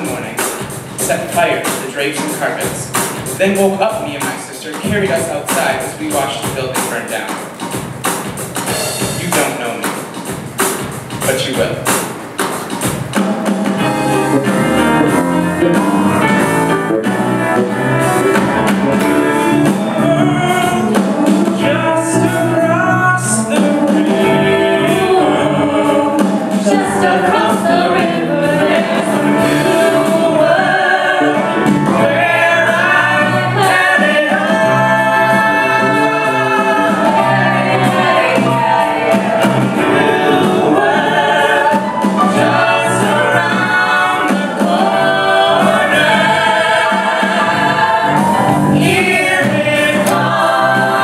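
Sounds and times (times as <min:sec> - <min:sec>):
drums: 0:00.0 - 0:51.0
piano: 0:00.0 - 0:51.0
women's backing vocals: 0:23.3 - 0:51.0.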